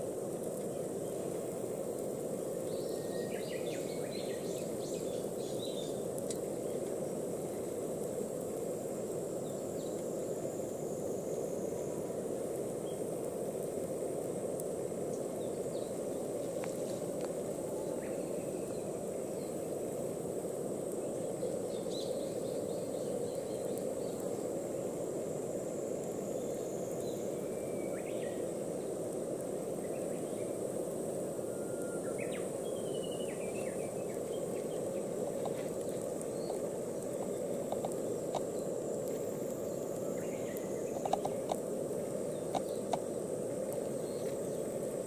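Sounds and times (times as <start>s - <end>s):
insect trilling: 0.0s - 45.0s
faint bird chirps: 2.7s - 6.0s, 31.4s - 35.1s.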